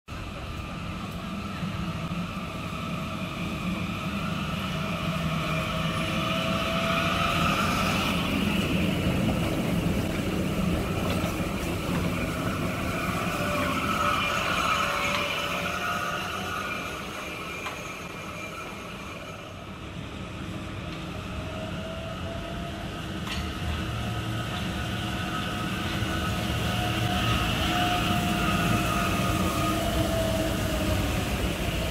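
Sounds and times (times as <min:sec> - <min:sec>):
tram passing with electric motor whine: 0:00.1 - 0:31.9.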